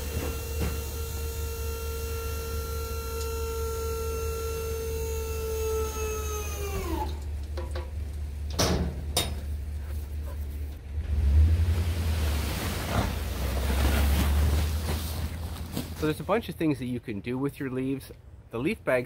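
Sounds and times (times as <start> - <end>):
hydraulic pump whining: 0.0 - 9.7.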